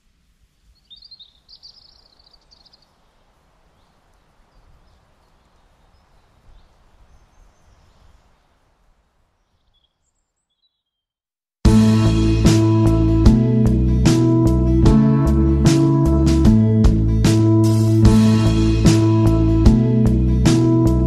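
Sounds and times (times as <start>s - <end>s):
small birds chirping: 0.6s - 11.2s
low rumble: 11.7s - 21.0s.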